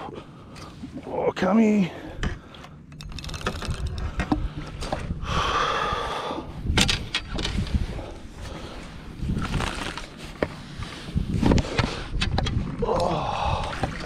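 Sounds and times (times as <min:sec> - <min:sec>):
knocks and handling noise in boat: 0:06.7 - 0:08.6.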